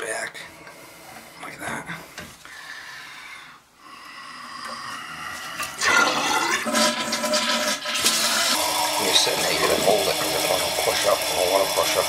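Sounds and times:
toilet flushing: 0:05.4 - 0:12.0
toilet tank refilling: 0:05.4 - 0:12.0.

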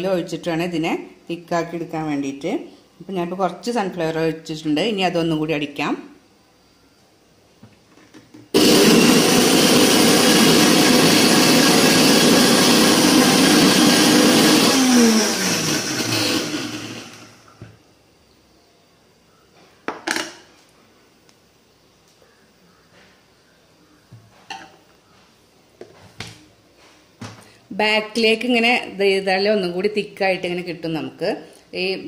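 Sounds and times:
electric mixer grinder running: 0:08.6 - 0:17.6.

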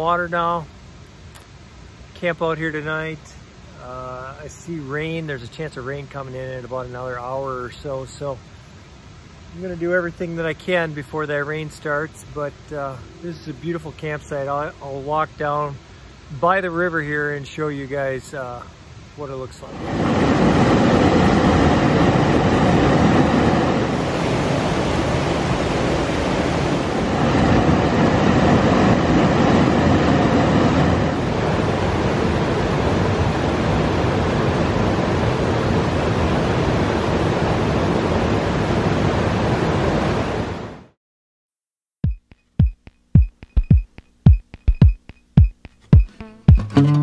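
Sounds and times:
river water rushing: 0:18.2 - 0:40.5
music with sharp beats: 0:42.0 - 0:47.0.

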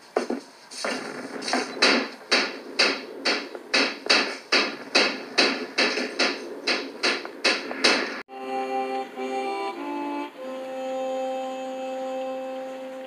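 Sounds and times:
sharp even knocks: 0:00.2 - 0:08.2.

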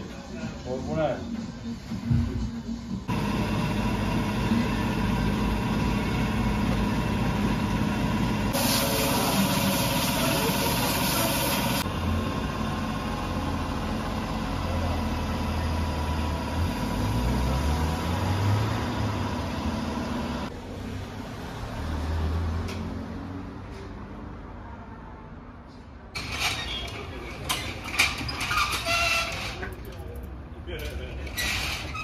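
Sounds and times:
vehicle engine idling: 0:03.0 - 0:20.6
loud hiss of air: 0:08.5 - 0:11.8.

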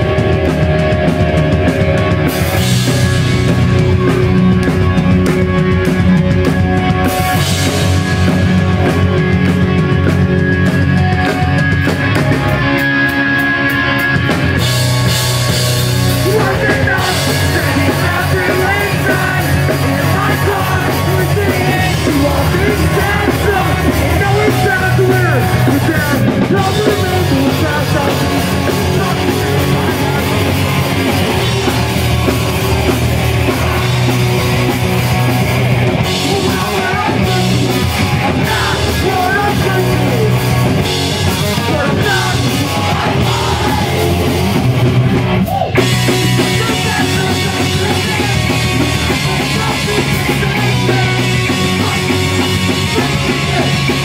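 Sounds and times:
bass guitar: 0:00.0 - 0:54.0
distorted electric guitars: 0:00.0 - 0:54.0
drum kit: 0:00.0 - 0:54.0.

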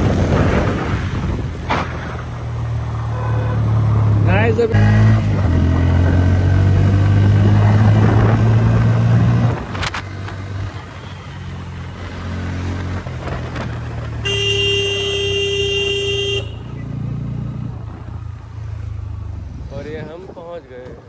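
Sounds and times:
motorcycle engine: 0:00.0 - 0:20.0
vehicle horn steady tone: 0:03.1 - 0:03.7, 0:14.2 - 0:16.8.

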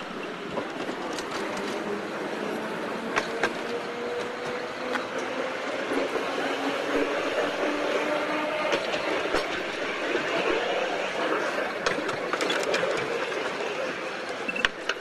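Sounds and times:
tram rattling along track: 0:00.0 - 0:15.0.

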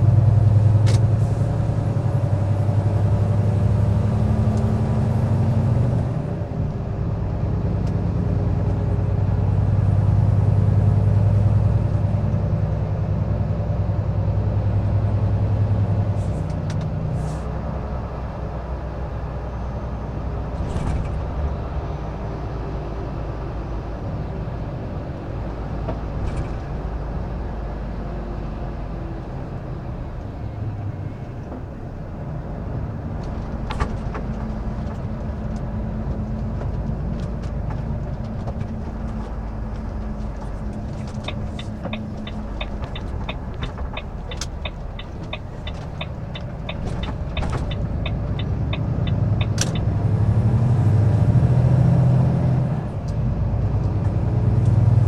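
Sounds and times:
truck diesel engine running: 0:33.0 - 0:50.0
turn signal ticking: 0:34.1 - 0:50.0.

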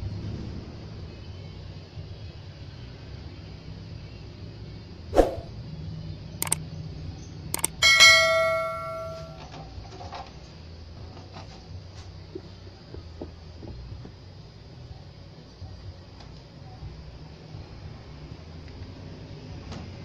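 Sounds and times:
light clicks: 0:07.6 - 0:07.8
ringing metallic strike: 0:07.6 - 0:09.4.

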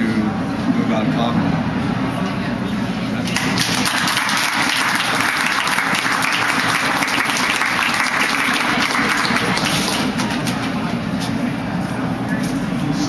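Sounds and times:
audience applauding: 0:03.2 - 0:10.9.

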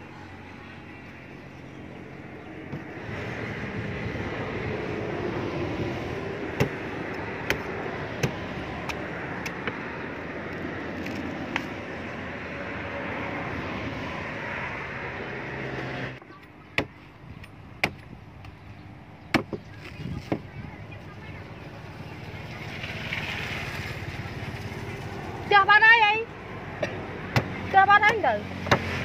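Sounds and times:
steady motor drone: 0:00.0 - 0:16.4
knife chopping fruit husks: 0:06.5 - 0:09.8, 0:19.3 - 0:20.5, 0:27.2 - 0:29.0.

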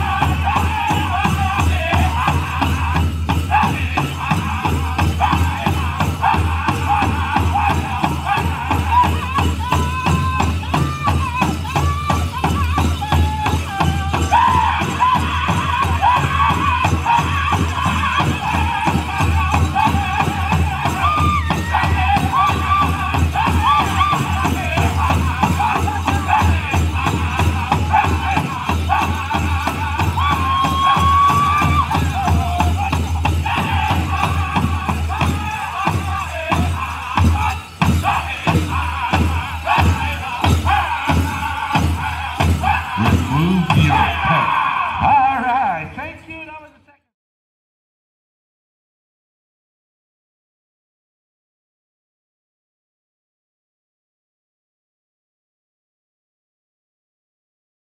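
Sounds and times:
big drum beating: 0:00.0 - 0:44.9
group singing in high voices: 0:00.0 - 0:45.4.

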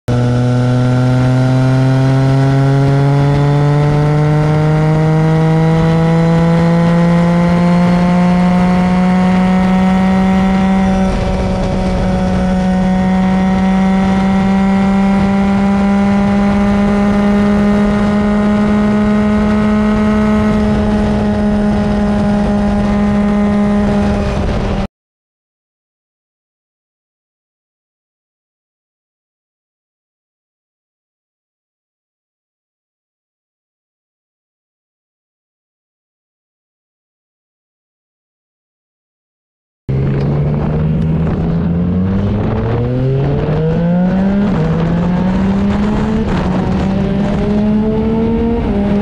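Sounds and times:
motorcycle engine accelerating: 0:00.1 - 0:24.9, 0:39.9 - 0:49.0
wind and road noise: 0:00.1 - 0:24.9, 0:39.9 - 0:49.0.

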